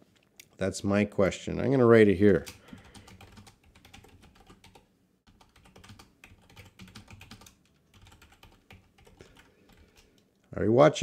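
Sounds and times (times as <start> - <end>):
typing on computer keyboard: 2.4 - 10.2.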